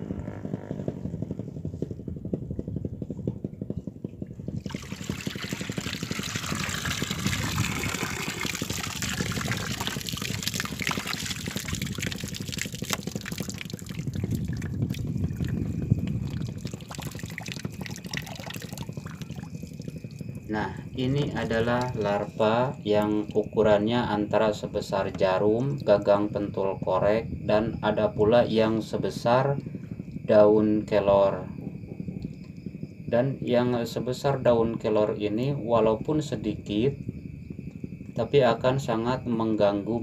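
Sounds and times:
water splashing: 4.6 - 20.2
water draining through a net: 4.6 - 20.6, 21.2 - 23.6.

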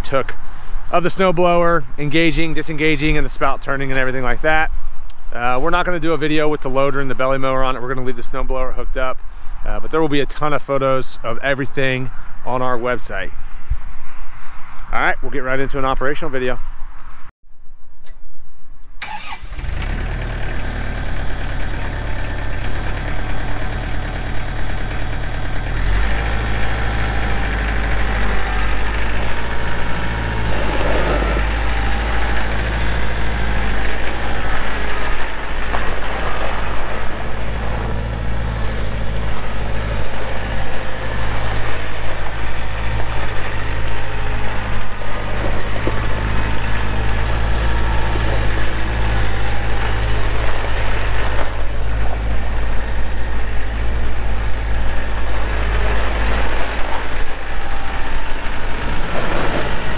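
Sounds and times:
tractor diesel engine running: 19.0 - 59.9.

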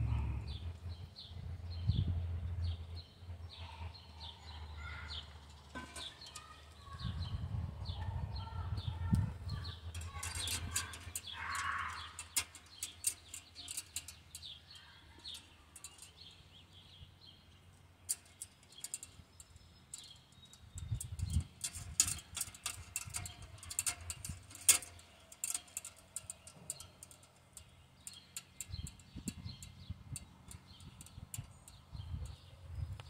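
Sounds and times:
birds chirping: 0.0 - 33.0
sheet metal parts clinking: 5.7 - 6.6, 9.9 - 16.4, 18.1 - 31.8.

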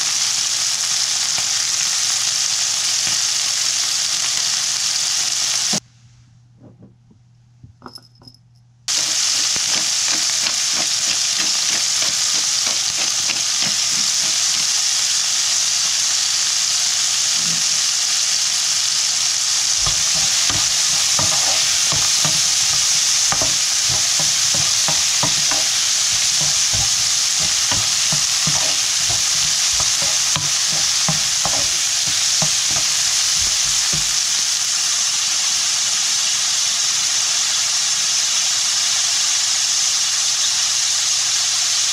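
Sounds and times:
food sizzling in a wok: 0.0 - 5.8, 8.9 - 41.9
spatula scraping a wok: 8.9 - 15.2, 19.6 - 34.4.

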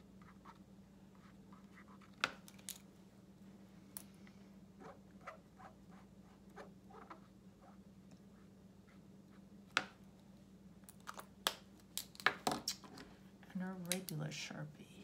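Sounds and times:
marker rubbing on glossy paper: 0.2 - 2.1, 4.8 - 7.8.

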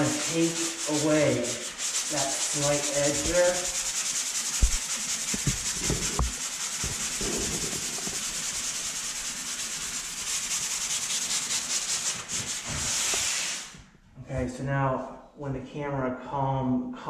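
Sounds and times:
sanding sponge scratching drywall: 0.0 - 13.8
soft knocks: 4.6 - 8.0.

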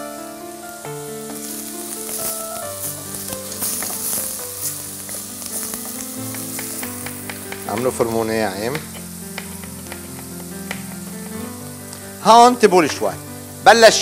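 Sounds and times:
food sizzling in a pan: 0.0 - 14.0
soft background music: 0.0 - 14.0
knife tapping on cutting board: 5.8 - 11.5.

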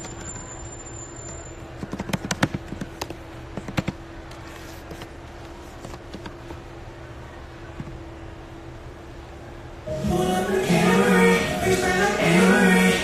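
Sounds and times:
faint steady hum: 2.7 - 13.0.

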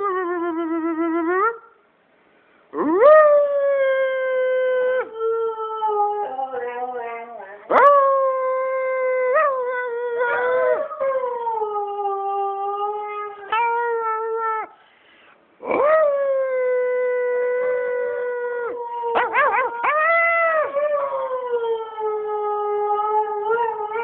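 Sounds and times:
dog howling: 7.7 - 14.8, 15.6 - 24.0.

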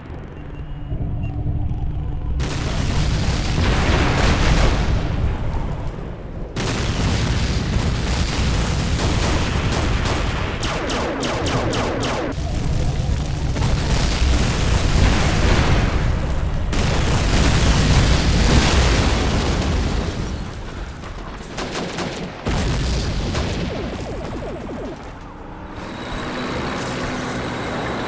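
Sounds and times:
booming explosions: 0.9 - 25.9
gunfire: 6.6 - 12.9, 13.5 - 25.0.

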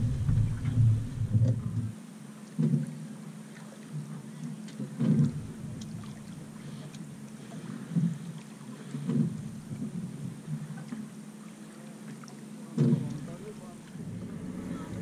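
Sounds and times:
low gusty thumps: 0.0 - 1.9
water wash: 0.0 - 15.0
wind: 0.0 - 15.0.

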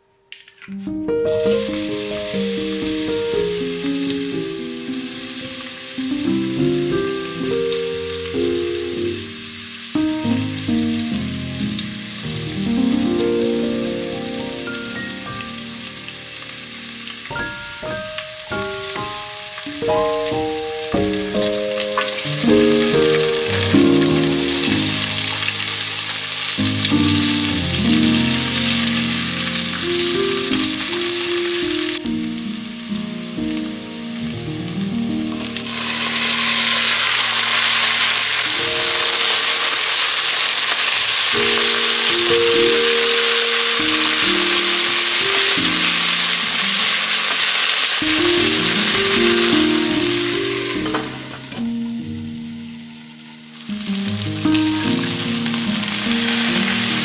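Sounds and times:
background music: 1.0 - 36.4
food sizzling in a frying pan: 1.3 - 57.0.

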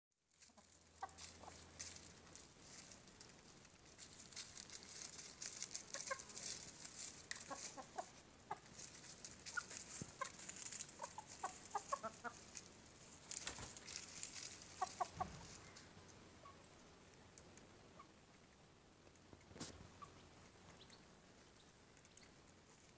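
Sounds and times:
dry leaves rustling: 0.3 - 16.1
chickens clucking softly: 0.4 - 2.1, 5.2 - 12.7, 13.3 - 22.9
scuffling: 0.4 - 15.9.

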